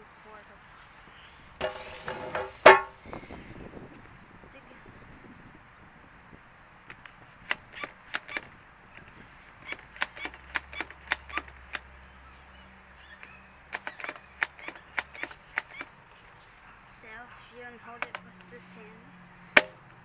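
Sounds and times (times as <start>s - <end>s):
water gun plastic clacks: 1.6s - 2.9s, 6.9s - 11.9s, 13.2s - 15.9s, 18.0s - 18.6s, 19.6s - 19.8s.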